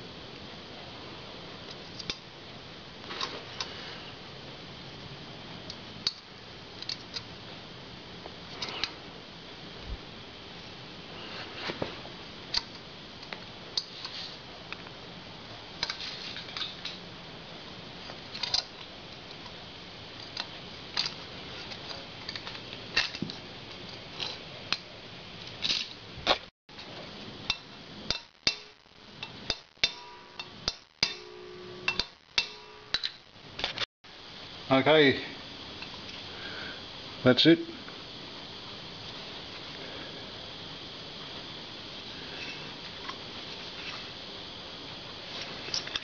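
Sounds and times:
hammer tapping metal: 27.5 - 33.2.

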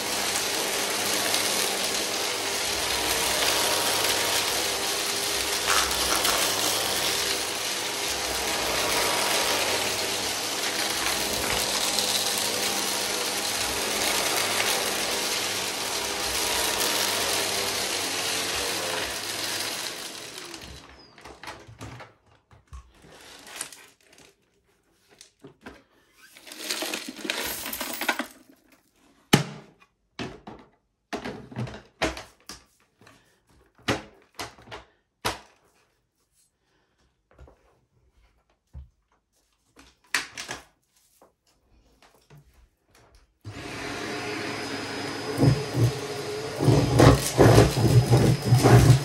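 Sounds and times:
vacuum cleaner running: 0.0 - 21.1, 43.5 - 49.0.

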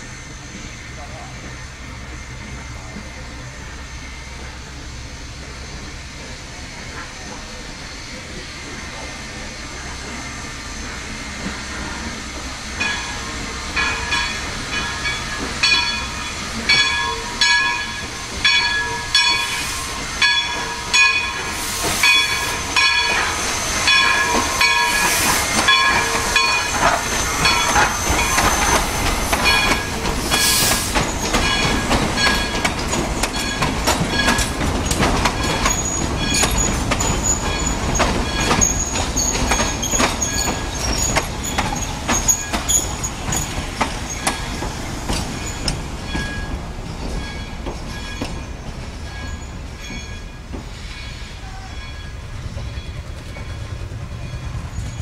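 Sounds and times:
steam hissing: 0.0 - 51.8
train coaches rumbling over rails: 0.0 - 55.0
locomotive bell ringing: 12.8 - 30.6, 31.2 - 43.1, 45.2 - 55.0
wheel squeal: 22.0 - 32.5, 35.4 - 44.6.

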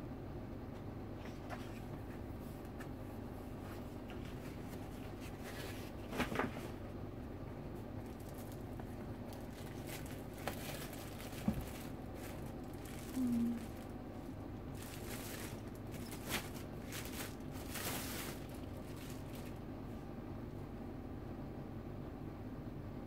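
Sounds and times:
plastic wrap crinkling: 8.0 - 19.6.

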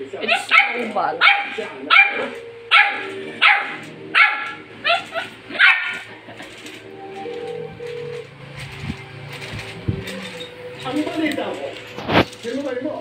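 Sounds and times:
small dog barking: 0.2 - 6.1.

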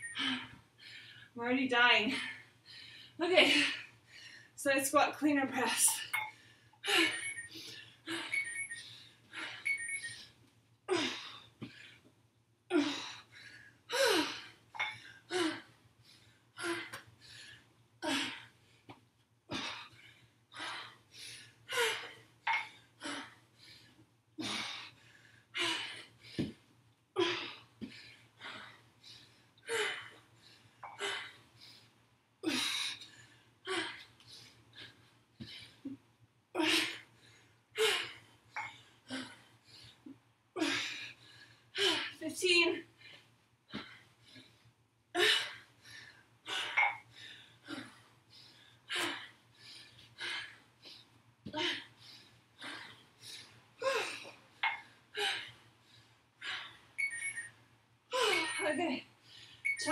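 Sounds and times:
woman breathing hard: 0.0 - 1.4, 2.1 - 4.6, 5.9 - 12.1, 12.7 - 18.9, 19.5 - 26.6, 27.2 - 36.0, 42.9 - 57.4.

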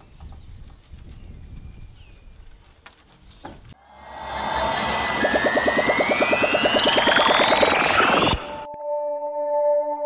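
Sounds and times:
pulsing synth beat: 3.8 - 8.7
rising synth sweep: 3.8 - 8.7.

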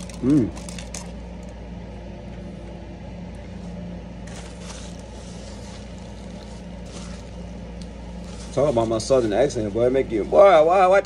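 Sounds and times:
low hum: 0.0 - 11.0
paper wrapper rustling: 4.2 - 7.4.

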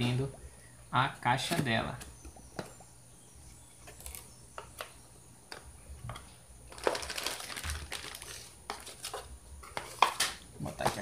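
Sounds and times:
plastic packaging crackling: 5.5 - 11.0.

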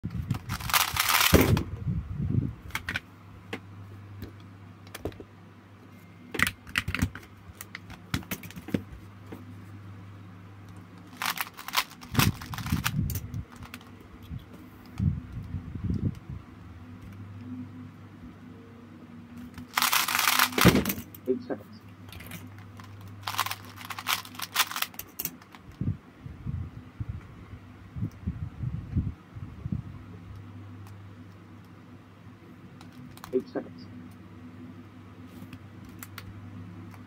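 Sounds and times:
steady low hum: 0.0 - 37.0
puzzle cube clattering: 0.3 - 1.6, 11.0 - 14.0, 19.6 - 21.2, 22.1 - 25.6.

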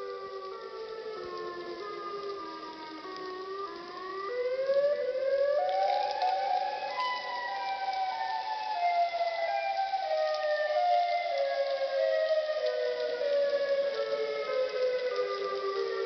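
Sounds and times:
tornado warning siren wailing: 0.0 - 16.0.

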